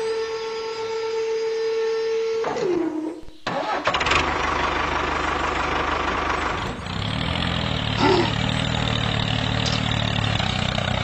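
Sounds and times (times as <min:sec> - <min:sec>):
tractor engine running: 0:03.4 - 0:11.0.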